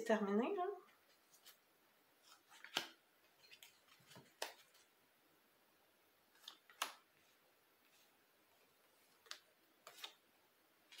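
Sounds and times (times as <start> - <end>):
cards clicking and tapping: 2.3 - 4.8, 6.4 - 7.1, 9.1 - 10.2.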